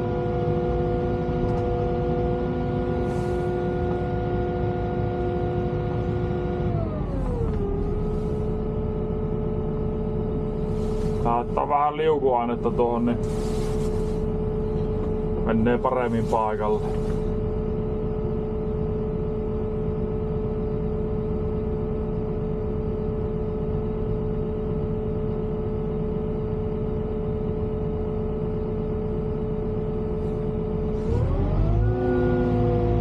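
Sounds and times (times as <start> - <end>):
excavator diesel engine revving: 30.9 - 33.0.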